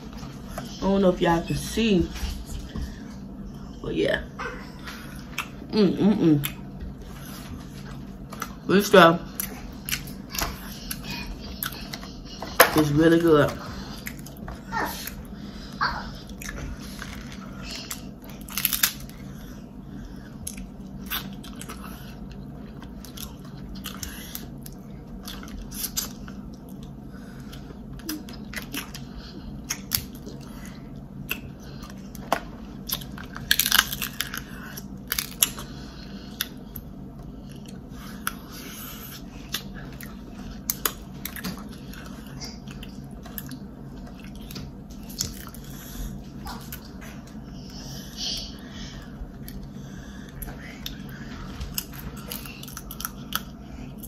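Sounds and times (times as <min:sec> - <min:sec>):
steady low hum: 0:00.0 - 0:54.0
chewing and biting: 0:05.2 - 0:05.6, 0:09.3 - 0:12.7, 0:16.1 - 0:47.4, 0:49.3 - 0:54.0.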